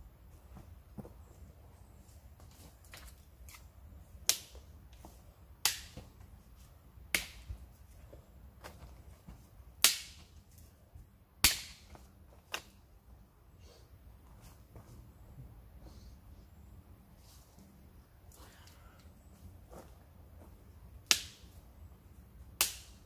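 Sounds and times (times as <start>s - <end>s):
dry sticks snapping: 5.6s - 6.0s, 9.8s - 10.3s, 11.4s - 12.8s, 21.0s - 21.5s, 22.6s - 23.0s.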